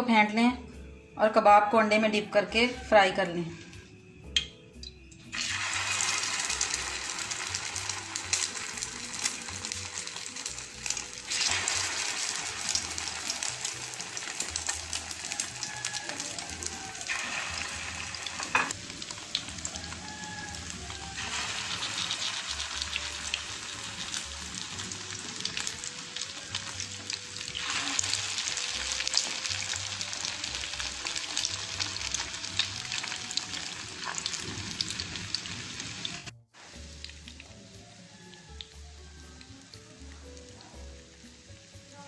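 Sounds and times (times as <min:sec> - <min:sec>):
faint background music: 0:00.0 - 0:42.0
food sizzling in oil: 0:05.3 - 0:42.0.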